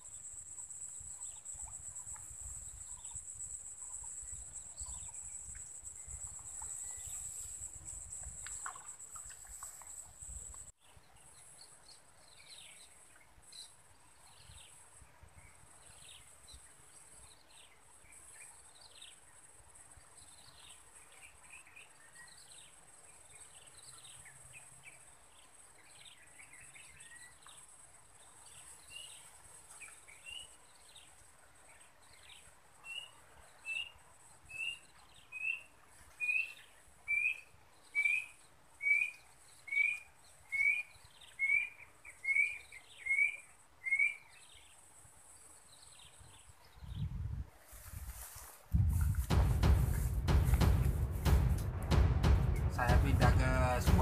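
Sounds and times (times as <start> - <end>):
low rumble: 48.8 - 54.0.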